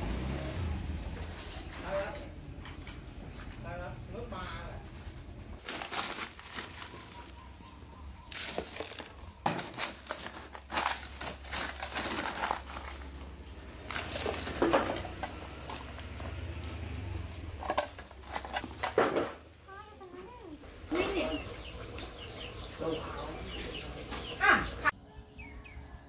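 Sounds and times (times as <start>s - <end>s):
plastic bag crinkling: 5.6s - 16.6s
crunching rattling ice: 5.6s - 19.4s.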